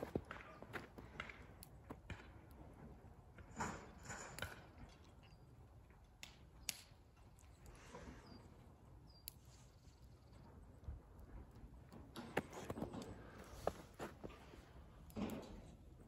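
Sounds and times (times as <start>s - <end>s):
soft rustles: 12.2s - 14.8s.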